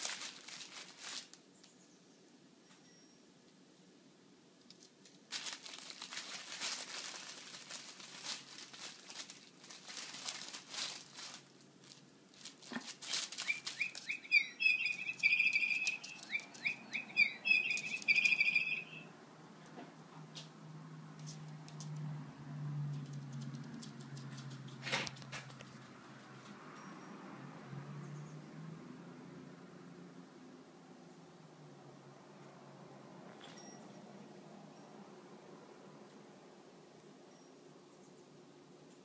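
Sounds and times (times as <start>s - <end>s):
fabric toy rustling and crinkling: 0.0s - 1.7s, 4.7s - 18.9s
high chirping squeaks: 13.2s - 19.1s.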